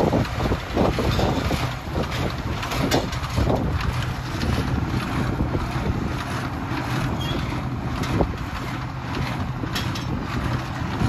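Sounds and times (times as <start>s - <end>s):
tractor diesel engine running: 0.0s - 11.0s
wind buffeting microphone: 0.0s - 11.0s.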